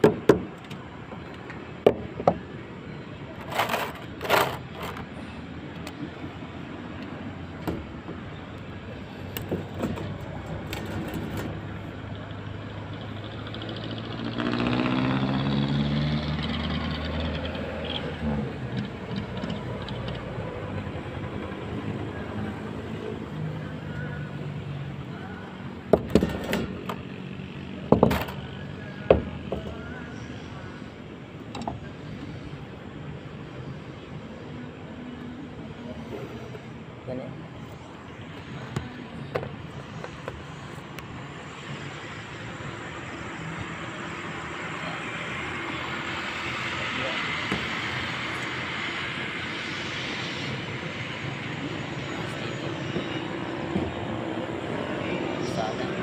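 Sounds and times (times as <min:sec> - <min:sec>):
vehicle engine passing: 0:10.2 - 0:23.6.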